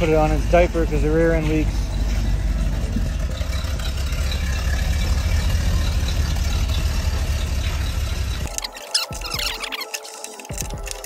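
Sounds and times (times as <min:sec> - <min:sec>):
pickup engine idling: 0:00.0 - 0:08.6.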